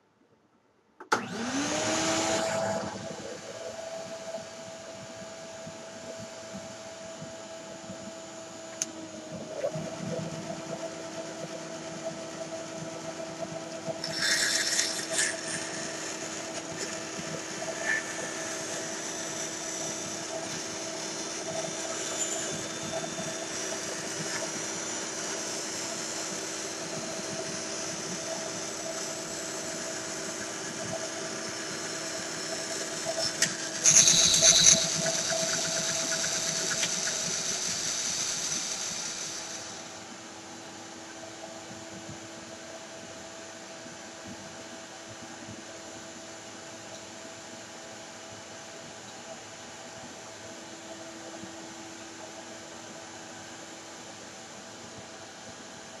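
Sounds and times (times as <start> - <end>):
band saw motor humming: 1.1 - 40.8
saw blade cutting wood: 14.0 - 30.6, 31.2 - 39.8.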